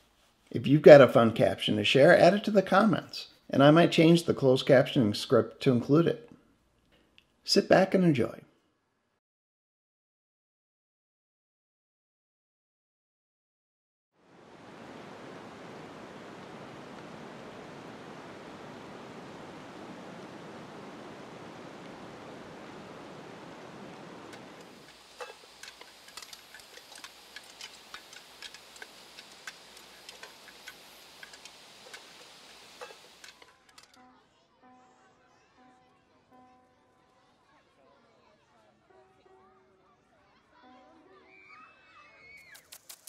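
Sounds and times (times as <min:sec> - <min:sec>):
steady rushing noise: 0:14.3 - 0:33.4.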